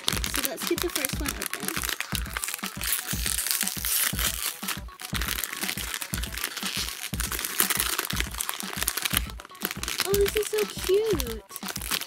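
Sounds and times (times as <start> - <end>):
foil bag crinkling: 0.0 - 12.0
music with thumping beat: 0.0 - 12.0.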